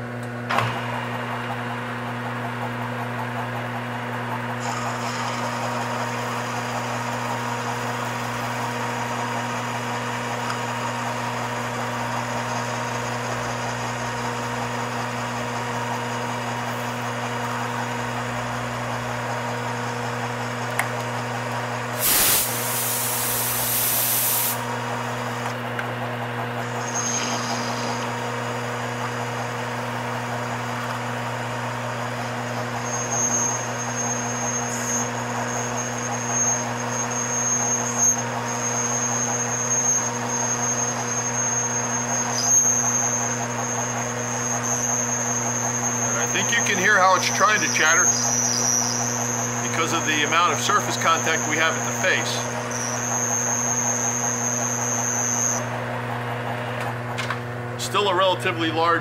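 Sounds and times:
metal lathe humming: 0.8s - 58.9s
coolant spray hissing: 22.0s - 24.7s.

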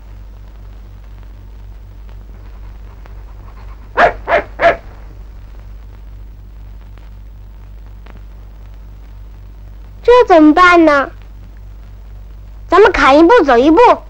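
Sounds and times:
film soundtrack hum: 0.0s - 14.0s
dog barking: 3.9s - 5.0s.

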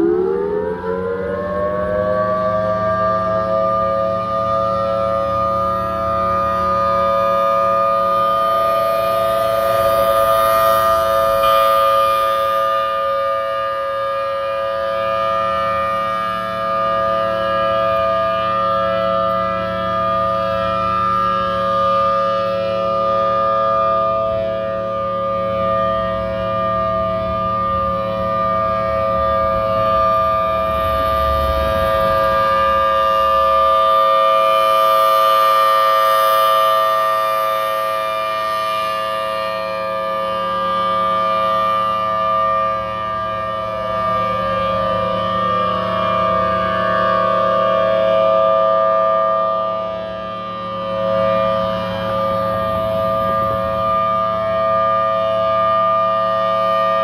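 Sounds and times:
warning siren wailing: 0.0s - 57.0s
low rumble: 29.1s - 33.8s.

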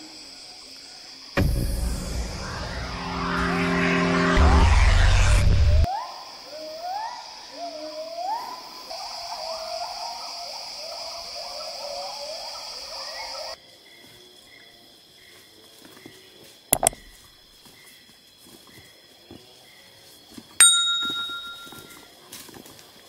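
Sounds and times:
insect drone: 0.0s - 20.5s.

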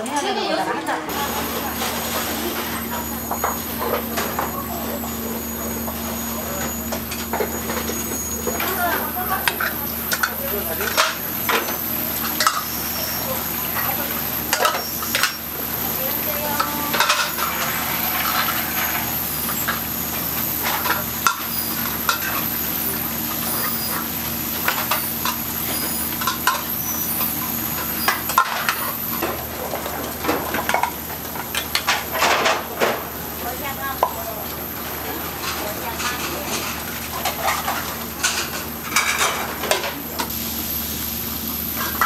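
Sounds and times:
gas burner flames rushing: 1.1s - 42.0s
stew sizzling and bubbling: 1.1s - 42.0s
tongs clinking against pots: 9.3s - 15.4s.

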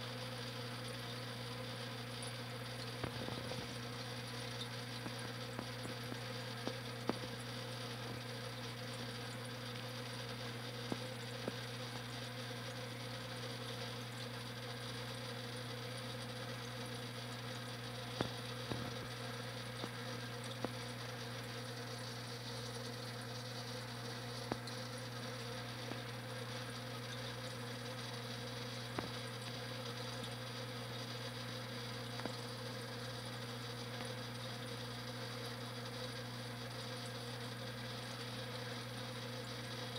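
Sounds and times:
aquarium pump buzzing hum: 0.0s - 39.9s.

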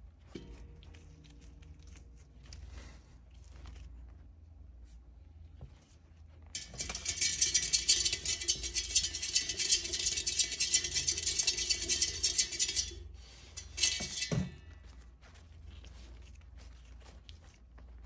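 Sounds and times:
exercise wheel spinning and rattling: 6.5s - 14.7s
rustling and scratching in bedding: 14.6s - 18.0s.

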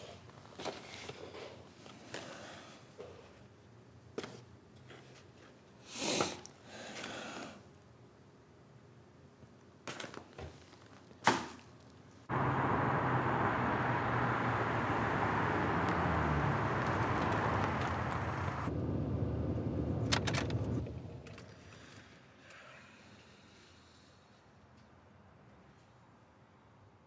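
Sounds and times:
car engine running: 12.3s - 21.2s
low hum: 12.3s - 21.3s.

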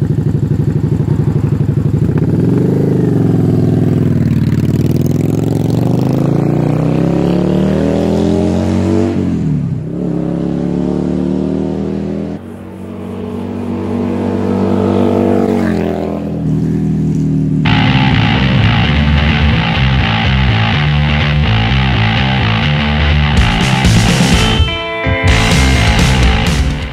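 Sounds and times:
motorcycle engine accelerating: 0.0s - 26.9s.

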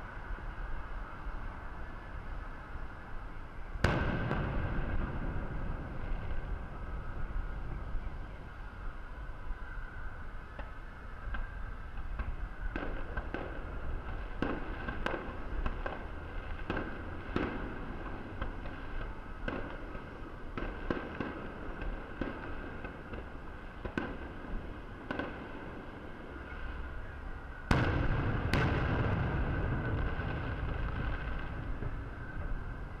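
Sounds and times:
loud firework booms: 3.8s - 8.0s, 27.7s - 32.6s
rumbling crackle: 3.8s - 9.2s, 27.7s - 33.0s.

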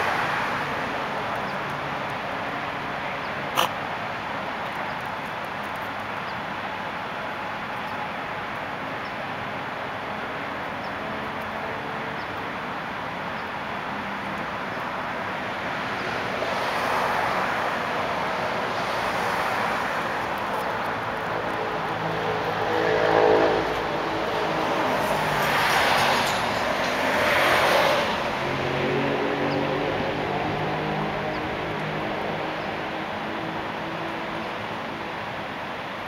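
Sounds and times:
city traffic hiss: 0.0s - 36.0s
vehicle approaching: 18.0s - 35.0s.

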